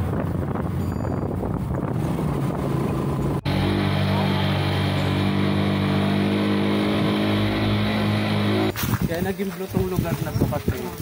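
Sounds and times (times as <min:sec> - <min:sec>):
vehicle engine running: 0:02.0 - 0:08.7.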